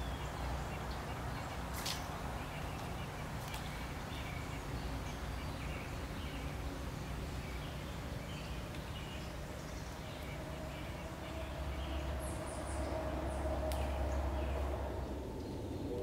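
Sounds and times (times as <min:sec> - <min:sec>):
low rumble: 0:09.4 - 0:16.0.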